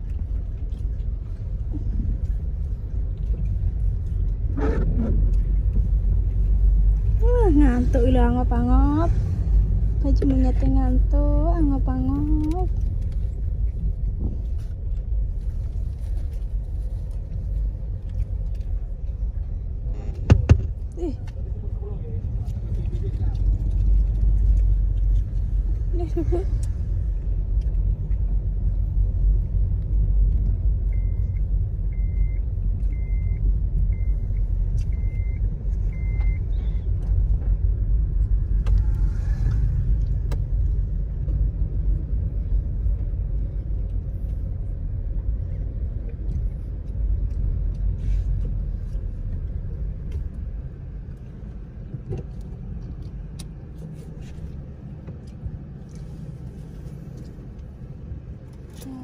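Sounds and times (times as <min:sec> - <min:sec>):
car cabin rumble: 0:00.0 - 0:59.0.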